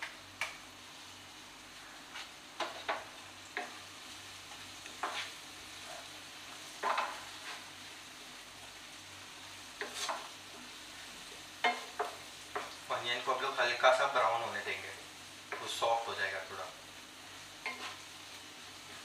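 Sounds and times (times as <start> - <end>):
onions sizzling in a pan: 0.0 - 19.0
spatula scraping and knocking pan: 2.1 - 3.8, 4.8 - 6.1, 6.8 - 7.7, 9.8 - 10.3, 11.6 - 12.8, 17.6 - 18.1.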